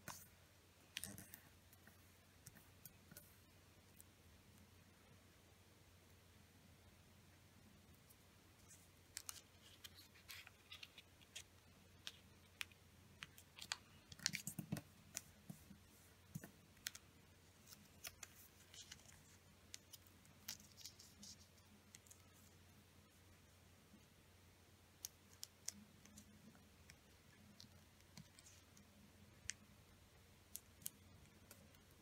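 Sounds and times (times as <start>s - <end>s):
paper crinkling and creasing: 9.1s - 15.7s, 16.4s - 22.5s.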